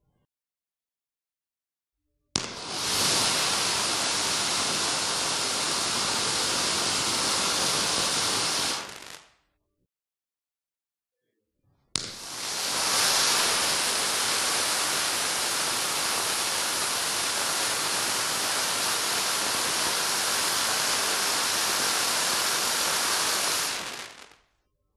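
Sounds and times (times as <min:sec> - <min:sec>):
spark fountain hissing: 0:02.4 - 0:09.2, 0:12.0 - 0:24.4
firework igniting crack: 0:02.4 - 0:09.4, 0:12.0 - 0:24.4.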